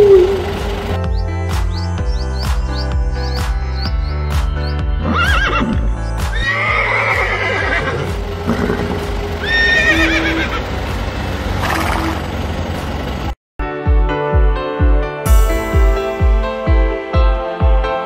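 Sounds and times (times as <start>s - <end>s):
background music: 0.0s - 11.8s, 13.6s - 18.0s
horse whinnying: 5.0s - 10.6s.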